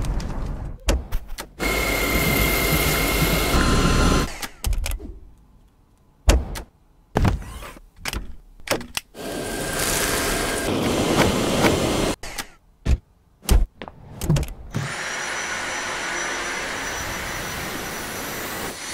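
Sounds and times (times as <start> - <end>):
cordless vacuum whining: 1.6 - 4.3, 9.2 - 12.2, 14.8 - 18.9.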